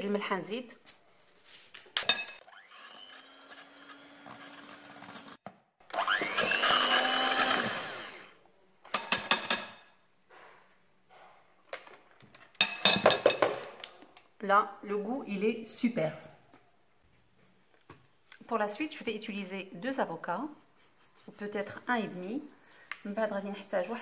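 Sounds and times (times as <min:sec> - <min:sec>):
electric hand mixer whirring: 0:02.4 - 0:08.3.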